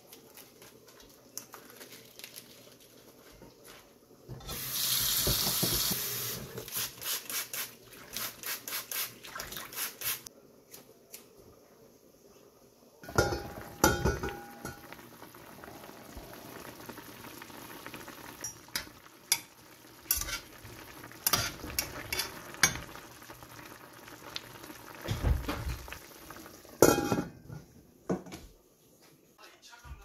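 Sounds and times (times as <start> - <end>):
pot boiling and bubbling: 0.0 - 7.0, 13.0 - 27.8.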